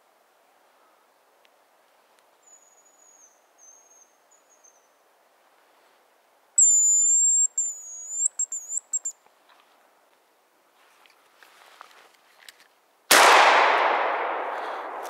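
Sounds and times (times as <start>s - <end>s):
high thin decoy whistle: 6.6s - 9.2s.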